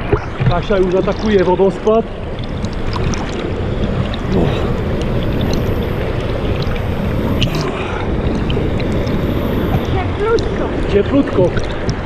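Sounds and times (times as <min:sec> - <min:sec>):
water pouring over weir: 0:00.0 - 0:12.0.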